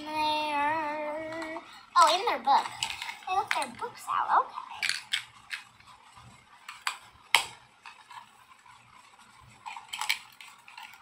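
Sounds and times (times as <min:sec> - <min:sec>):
plastic toy pieces clicking: 0:04.7 - 0:05.7, 0:09.6 - 0:11.0.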